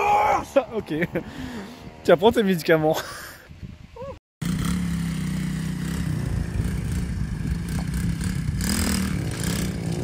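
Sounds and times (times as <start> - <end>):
dirt bike engine revving: 4.4 - 10.0.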